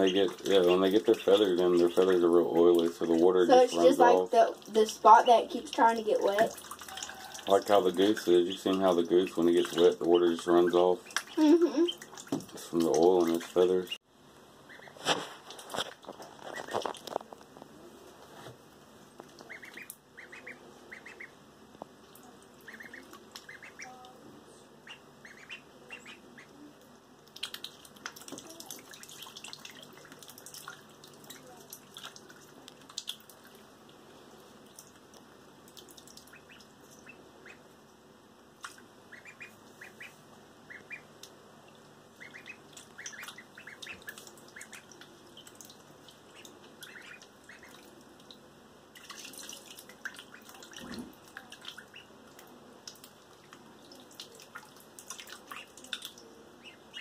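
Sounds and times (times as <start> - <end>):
splashing in bathtub water: 0.0 - 13.5, 27.2 - 33.6, 42.7 - 52.0, 52.8 - 56.2
ducklings peeping: 0.0 - 14.0, 14.6 - 15.1, 16.2 - 17.1, 19.2 - 33.1, 36.1 - 37.8, 38.6 - 41.3, 42.1 - 48.0, 50.2 - 52.2, 53.0 - 57.0.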